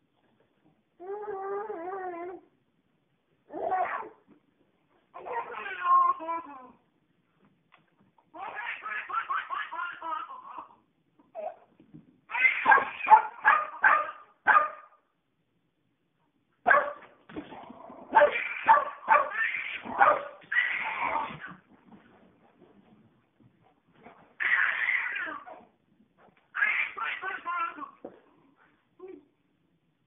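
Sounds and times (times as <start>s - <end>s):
baby giggling: 8.4s - 10.8s, 26.6s - 28.0s
puppy yapping: 12.3s - 14.9s, 18.1s - 21.6s.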